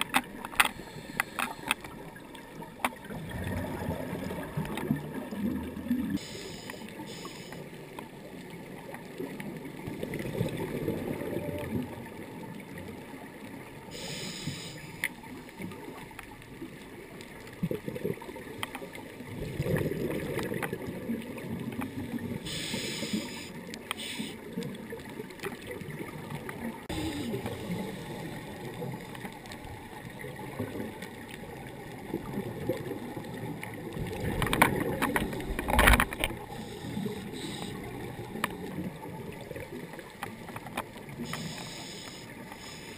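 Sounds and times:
regulator hiss on in-breath: 0.7 - 1.9, 6.2 - 7.7, 13.9 - 15.1, 22.4 - 24.5, 26.9 - 28.6, 36.5 - 38.7, 41.2 - 42.9
bubbling rush on out-breath: 3.0 - 7.6, 26.8 - 29.2.

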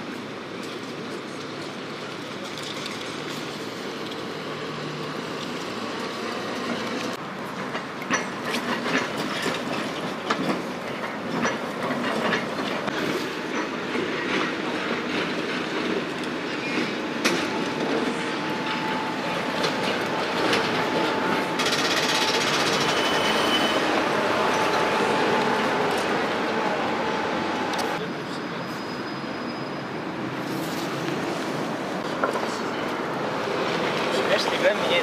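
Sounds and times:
tram rolling rumble: 0.0 - 35.0
tram wheels clicking over rail joints: 0.1 - 28.0.

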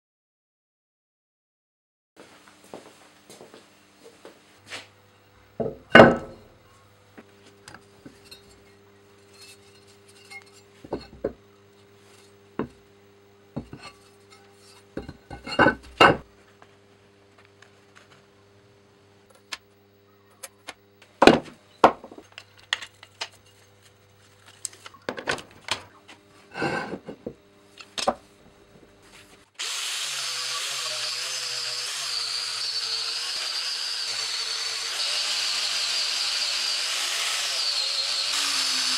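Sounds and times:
axe head clunking on wood: 5.6 - 6.4
wire wheel grinder on steel: 8.2 - 10.7, 29.6 - 38.9.

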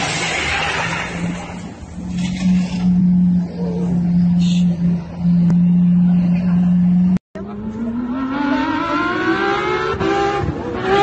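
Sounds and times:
steady droning tone: 0.7 - 7.6
sports car engine accelerating: 2.0 - 11.0.

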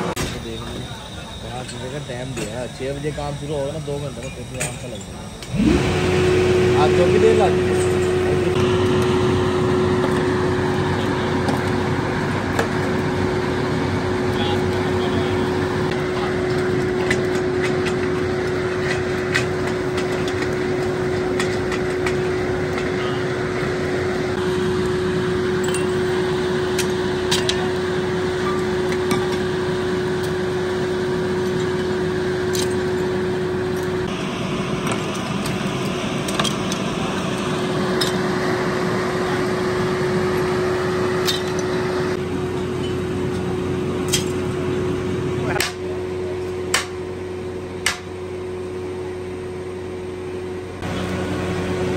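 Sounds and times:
steady mechanical hum: 0.0 - 51.9.

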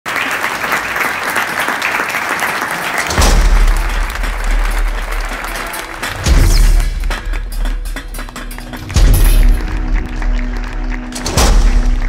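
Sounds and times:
people clapping: 0.0 - 12.0.

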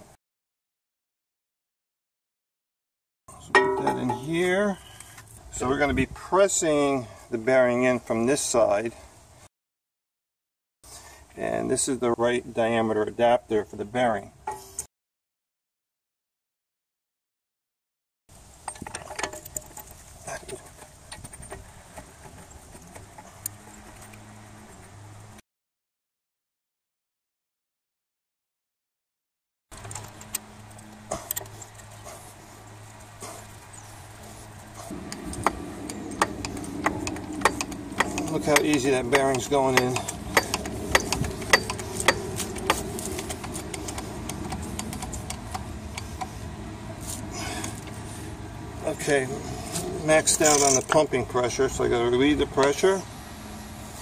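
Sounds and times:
metal parts clicking and knocking: 18.6 - 24.2, 34.9 - 46.3, 50.3 - 51.0
low steady hum: 30.1 - 54.0.

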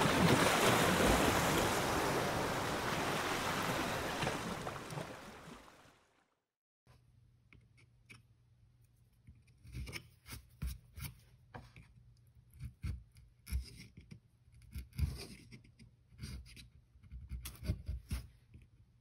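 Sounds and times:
knife carving wood: 9.2 - 11.3, 12.4 - 18.6.

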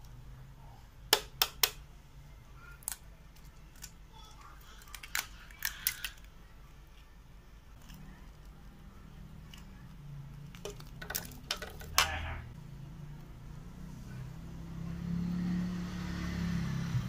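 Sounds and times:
egg tapped against plastic bowl: 1.1 - 1.8
plastic parts clicking: 2.8 - 6.3, 10.5 - 12.2.

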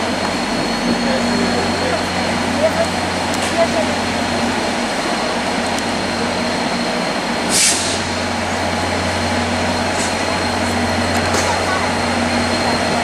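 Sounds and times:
diesel locomotives running: 0.0 - 13.0
air hiss: 7.5 - 8.3.

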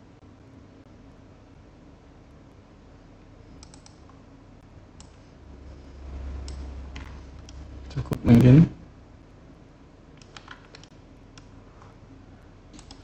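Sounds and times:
computer mouse and keyboard clicks: 3.6 - 4.2, 10.2 - 11.9, 12.7 - 13.0
low rumble: 4.6 - 9.4.

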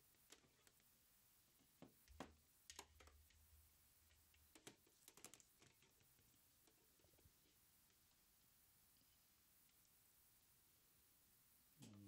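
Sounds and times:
faint clicks and taps: 0.0 - 1.0, 1.6 - 8.2, 9.1 - 10.0
faint low hum: 0.0 - 12.0.

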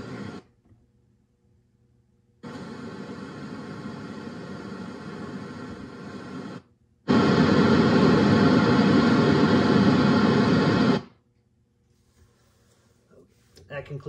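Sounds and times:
radio static hiss: 0.0 - 0.5, 2.4 - 11.1.

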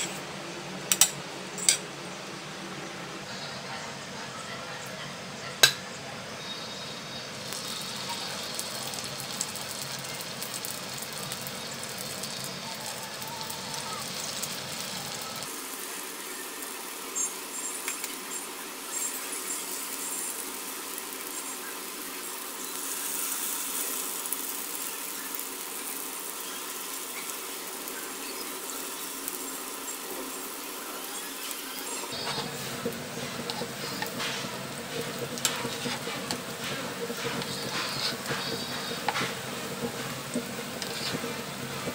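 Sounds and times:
batter sizzling in hot oil: 6.5 - 41.9
spatula knocking on pan: 32.2 - 41.9.

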